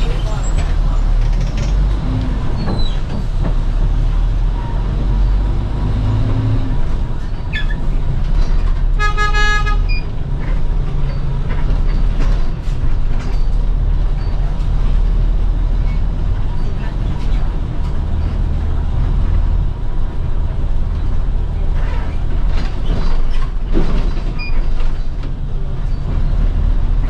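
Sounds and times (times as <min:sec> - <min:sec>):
bus engine droning: 0:00.0 - 0:27.0
vehicle horn toot: 0:09.0 - 0:10.0.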